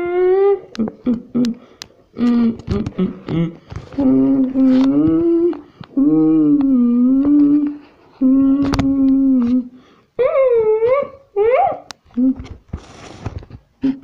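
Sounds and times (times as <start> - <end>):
person humming: 0.0 - 11.2, 12.1 - 12.5.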